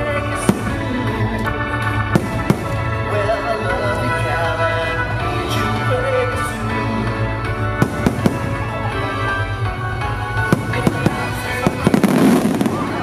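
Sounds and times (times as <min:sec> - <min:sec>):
music soundtrack: 0:00.0 - 0:13.0
fireworks bangs: 0:02.1 - 0:03.0, 0:07.8 - 0:08.8, 0:10.4 - 0:13.0.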